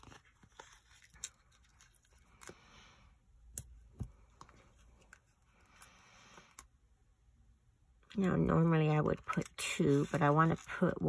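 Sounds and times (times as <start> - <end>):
light paper rustling: 0.0 - 2.7, 8.5 - 11.0.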